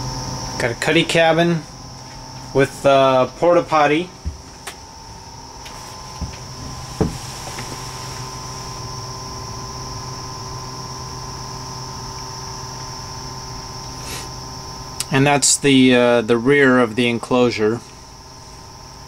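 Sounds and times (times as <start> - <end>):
high-pitched whine: 0.0 - 19.0
steady background hum: 0.0 - 19.0
knock: 7.0 - 7.2.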